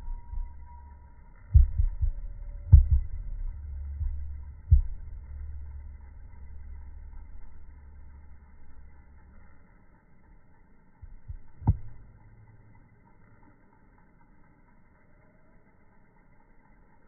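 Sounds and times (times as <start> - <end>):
low rumble: 0.0 - 13.5.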